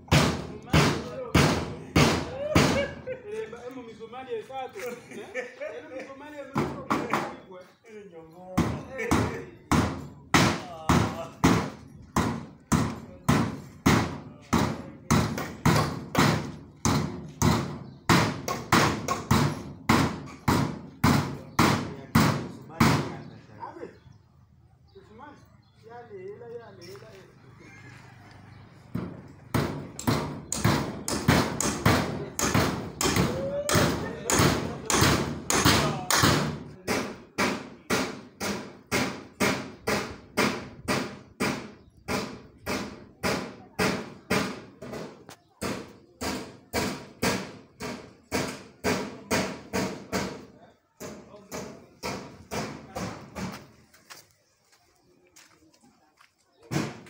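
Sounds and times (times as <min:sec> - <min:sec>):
hammer driving nails: 0:28.9 - 0:50.4.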